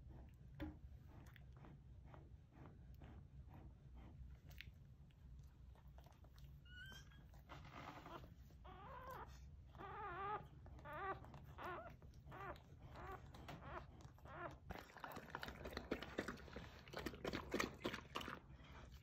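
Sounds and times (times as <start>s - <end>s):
dog whimpering: 6.6s - 14.7s.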